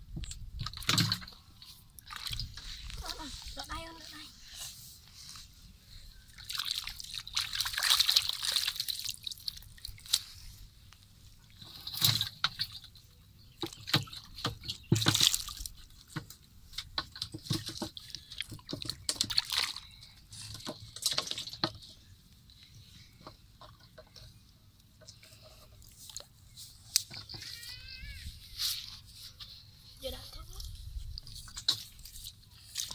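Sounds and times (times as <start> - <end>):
muddy water splashing and sloshing: 0.5 - 4.5, 6.3 - 22.0, 30.0 - 32.9.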